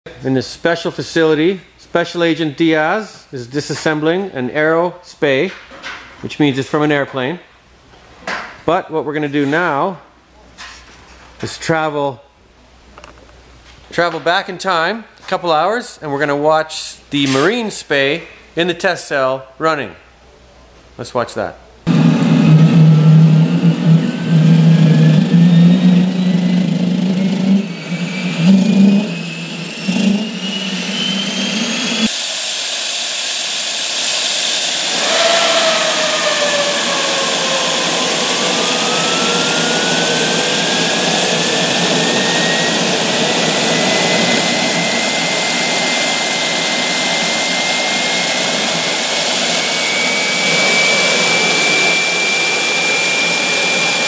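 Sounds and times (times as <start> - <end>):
gas turbine whine rising: 21.8 - 54.0
low steady drone: 21.9 - 32.2
loud rush of air: 21.9 - 54.0
second whine climbing: 21.9 - 54.0.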